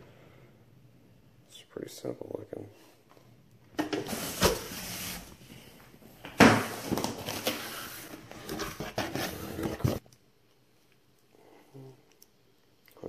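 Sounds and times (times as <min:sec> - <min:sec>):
cardboard scraping: 0:04.0 - 0:05.4, 0:06.6 - 0:10.0.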